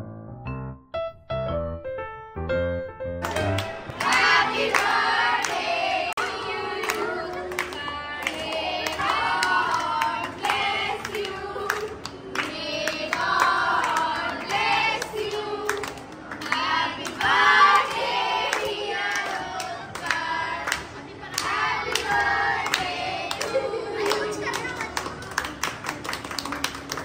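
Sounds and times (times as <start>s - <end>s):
hands clapping along: 3.2s - 27.0s
children and adults singing: 3.9s - 24.7s.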